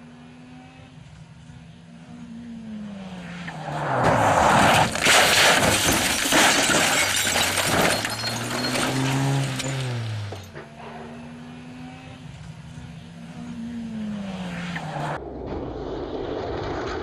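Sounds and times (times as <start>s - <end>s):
car engine: 0.0s - 17.0s
car crash with metal bangs: 3.9s - 10.9s.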